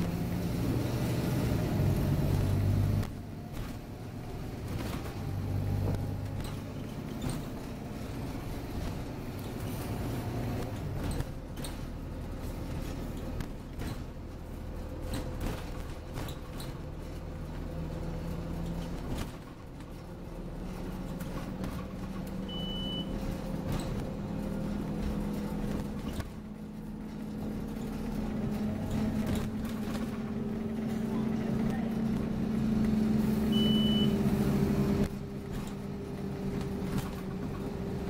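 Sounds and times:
interior rattles and knocks: 0.0 - 33.4, 34.4 - 38.0
bus engine drone: 0.0 - 38.0
road rumble: 0.0 - 38.0
short high beep: 33.5 - 34.2.

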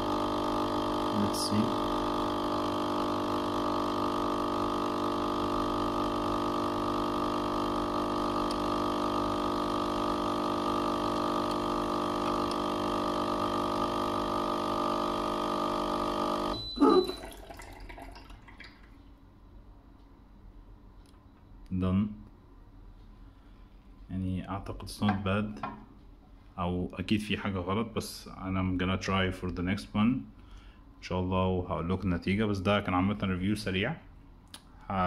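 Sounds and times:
coffee machine pump humming: 0.0 - 19.0.

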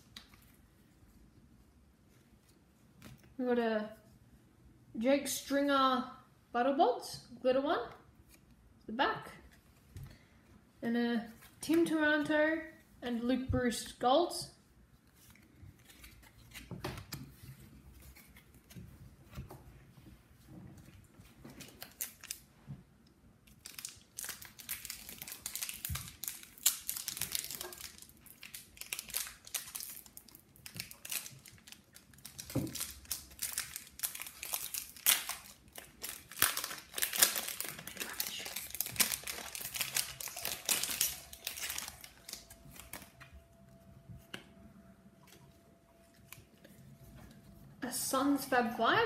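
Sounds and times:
foil wrapper crinkling: 21.6 - 22.5, 23.5 - 43.4.

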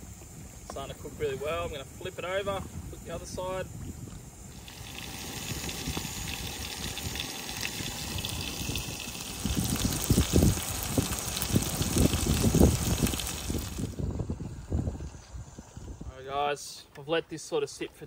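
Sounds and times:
steak sizzling in a hot pan: 3.4 - 14.0.

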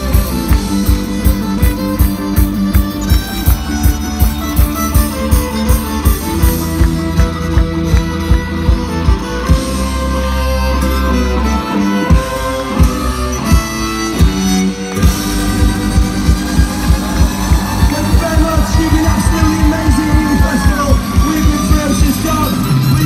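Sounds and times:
live punk band playing: 0.0 - 23.0
fast steady drumbeat: 13.5 - 22.6.

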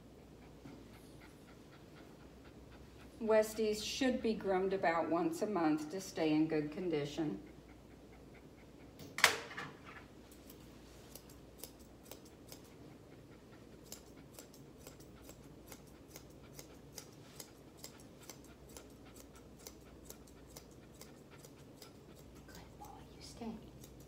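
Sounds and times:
scissors snipping fur: 10.3 - 12.9, 13.6 - 24.0.

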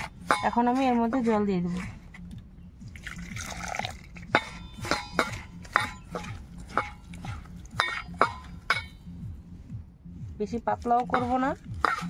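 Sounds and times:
water trickling into steel bowl: 2.9 - 5.3.

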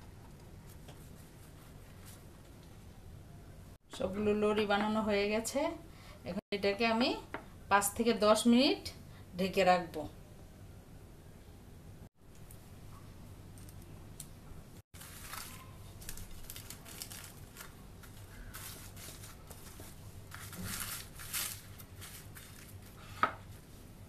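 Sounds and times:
plastic cling film crinkling: 15.0 - 23.0.

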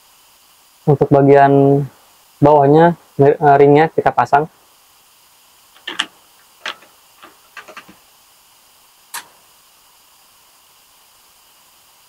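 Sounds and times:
small parts clicking and knocking: 5.8 - 8.0.

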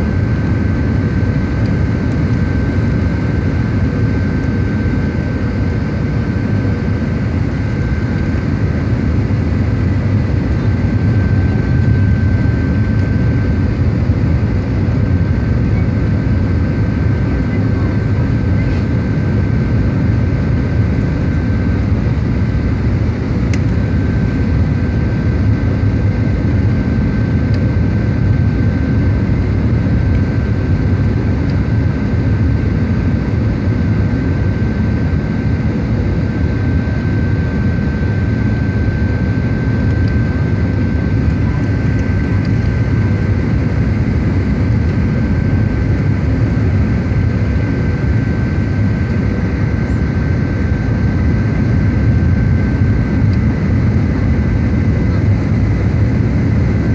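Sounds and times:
airplane cabin engine and airflow noise: 0.0 - 56.9
high engine whine: 0.0 - 56.9.

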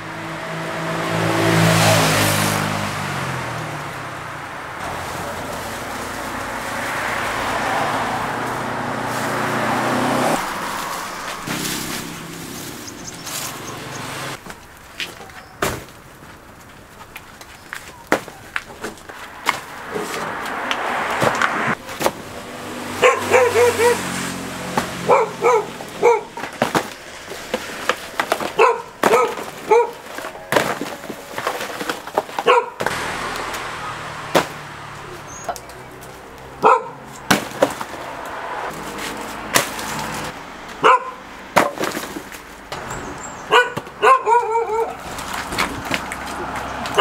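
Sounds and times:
dog barking: 23.0 - 24.1, 25.0 - 26.4, 28.6 - 30.1, 32.4 - 32.8, 36.6 - 37.1, 40.8 - 41.2, 43.4 - 45.0.

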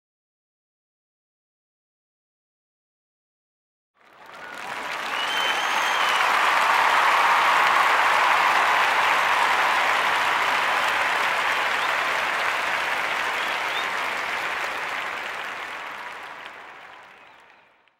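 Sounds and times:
crowd applauding: 4.0 - 17.9.

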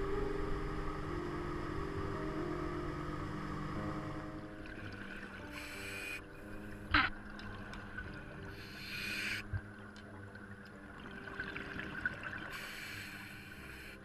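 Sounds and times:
regulator hissing inhalation: 5.6 - 6.2, 8.6 - 9.4, 12.5 - 14.0.

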